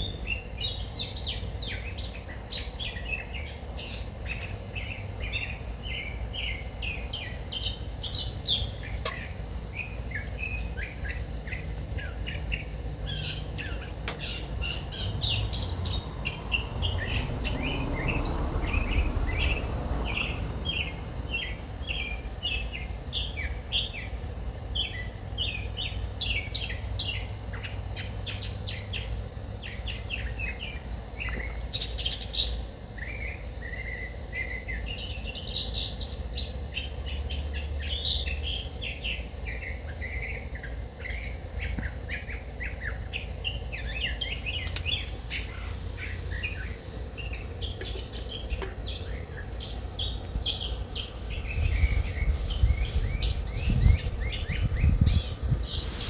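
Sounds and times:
songbirds chirping: 0.0 - 56.0
wind rumble on microphone: 51.3 - 56.0.

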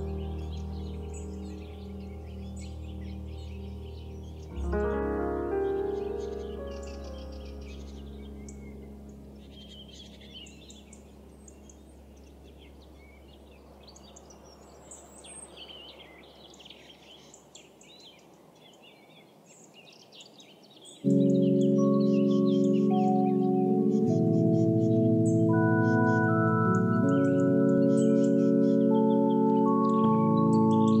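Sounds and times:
background music: 0.0 - 14.5, 21.1 - 31.0
faint outdoor hiss: 0.0 - 31.0
small birds chirping: 0.0 - 31.0.

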